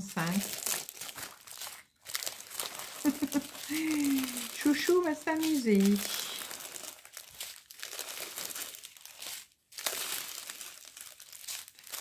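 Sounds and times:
plastic sachets crinkling: 0.0s - 12.0s.

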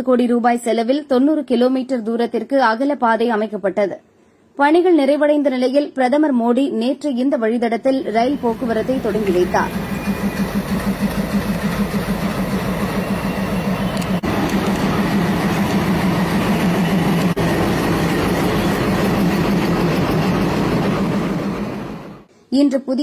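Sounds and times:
locomotive engine throbbing: 8.1s - 22.3s.

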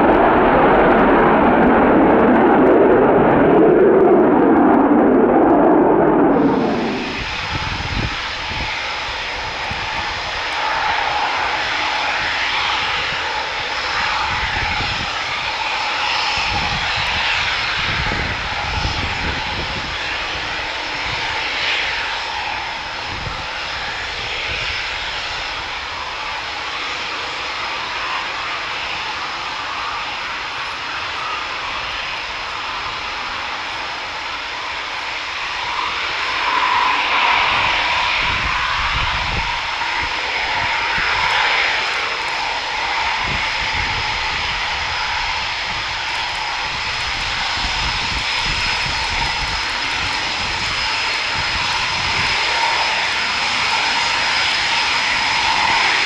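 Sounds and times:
jet engine rushing with whine: 0.0s - 56.0s.

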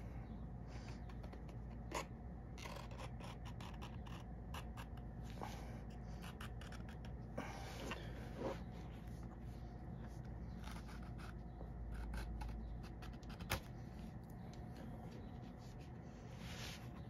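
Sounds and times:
knife scraping leather: 10.5s - 13.7s.

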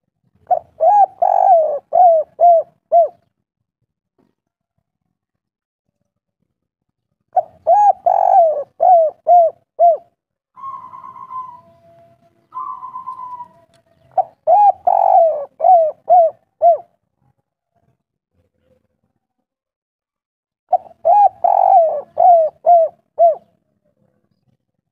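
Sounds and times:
dove cooing: 0.4s - 3.3s, 7.4s - 16.9s, 20.7s - 23.6s.

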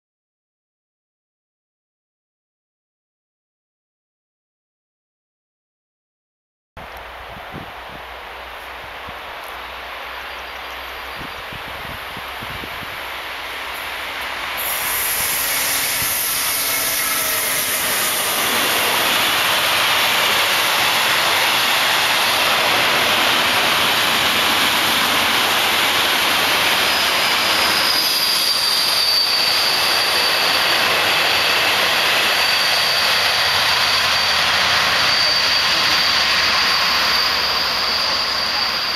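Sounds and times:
electric locomotive passing: 6.8s - 38.9s
high wheel squeal: 13.7s - 38.9s.

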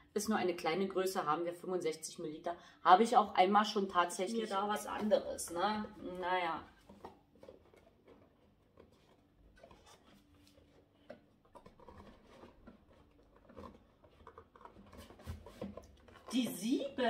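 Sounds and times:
cardboard packaging handled: 6.7s - 16.4s.

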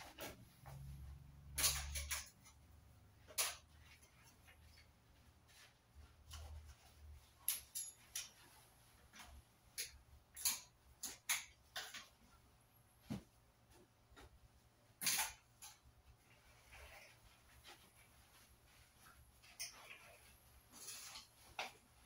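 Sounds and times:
hangers clicking on metal rail: 1.5s - 2.6s, 3.3s - 3.7s, 9.7s - 12.1s, 15.0s - 15.9s.

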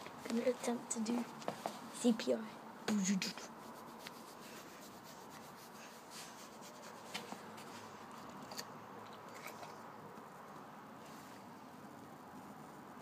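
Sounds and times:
hand rubbing dog fur: 3.2s - 8.2s.

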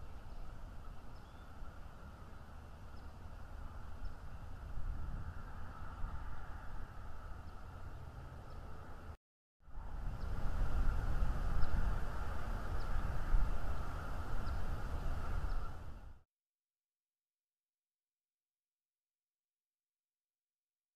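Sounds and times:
wind buffeting microphone: 2.9s - 8.4s, 9.7s - 16.2s
steady high hiss: 9.8s - 16.2s.

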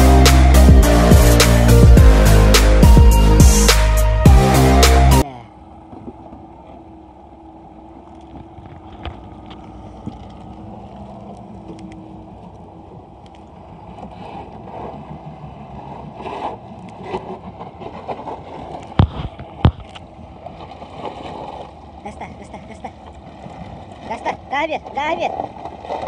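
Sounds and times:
ice and water scraping: 14.0s - 19.9s.

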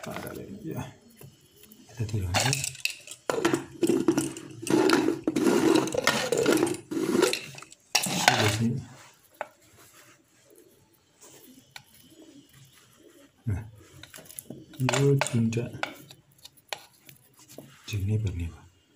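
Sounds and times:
metal scraping and knocking: 2.1s - 8.8s, 14.0s - 17.0s.

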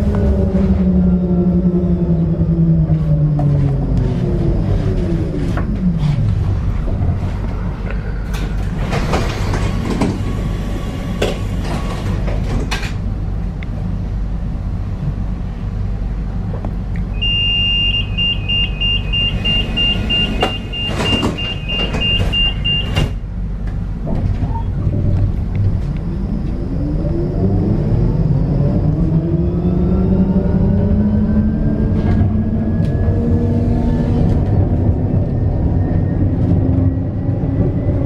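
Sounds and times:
steady low rumble: 0.0s - 20.8s, 22.6s - 38.0s
tram motor whine: 0.0s - 38.0s
tram doors knocking and sliding: 8.2s - 13.2s, 19.3s - 26.0s
high door warning beeps: 17.2s - 23.2s.

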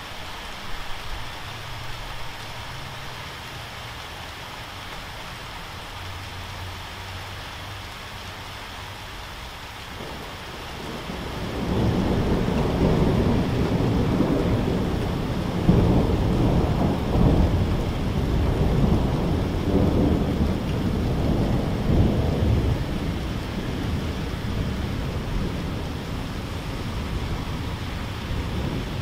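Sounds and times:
steady rain: 0.0s - 29.0s
rolling thunder: 10.0s - 29.0s.

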